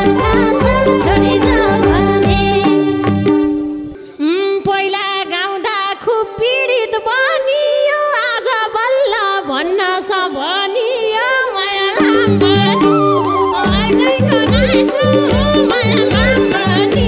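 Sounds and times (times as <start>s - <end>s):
ornamented folk melody with vibrato: 0.0s - 8.4s.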